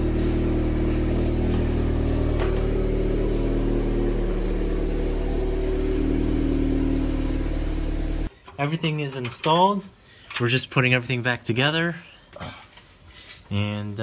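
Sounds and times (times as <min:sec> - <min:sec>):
car engine idling: 0:00.0 - 0:08.3.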